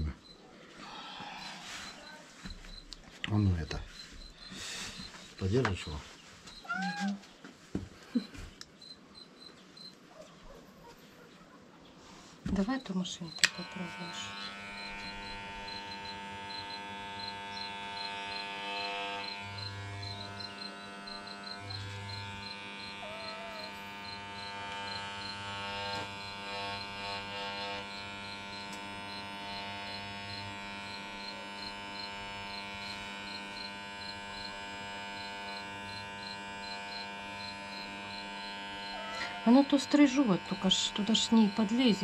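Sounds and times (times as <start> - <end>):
electric pet clipper humming: 13.3 - 42.0.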